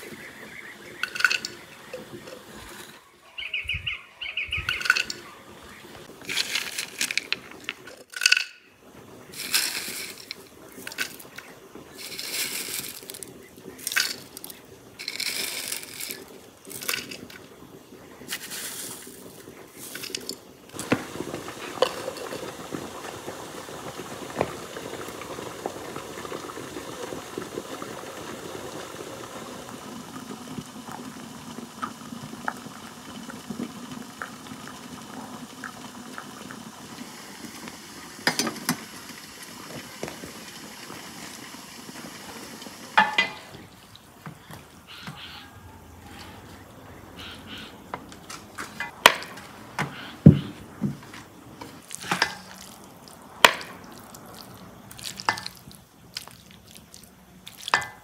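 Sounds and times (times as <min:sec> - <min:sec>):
water running into teapot: 0:00.0 - 0:03.0, 0:04.5 - 0:08.6, 0:09.2 - 0:17.6, 0:18.2 - 0:44.7, 0:51.8 - 0:58.0
dry herbs rustling: 0:06.1 - 0:08.2, 0:09.3 - 0:17.5, 0:18.2 - 0:22.5.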